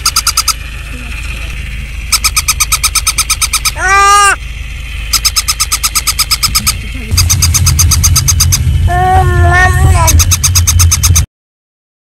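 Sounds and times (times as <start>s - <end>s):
toy electronic chirping pulses: 0.0s - 11.3s
low rumble: 0.5s - 11.3s
rising and falling toy call: 2.2s - 4.4s.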